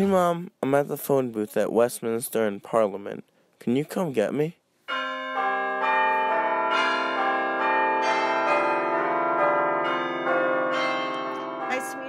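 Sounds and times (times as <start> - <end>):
bells chiming: 4.9 - 12.0.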